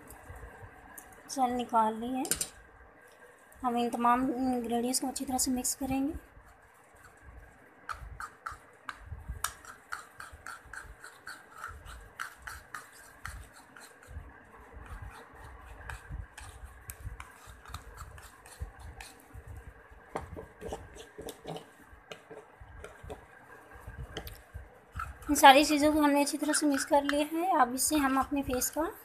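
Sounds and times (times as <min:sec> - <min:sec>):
spoon scraping paste in dish: 0:07.9 - 0:14.2, 0:14.8 - 0:19.4, 0:20.2 - 0:23.2, 0:24.1 - 0:25.5, 0:26.4 - 0:27.2.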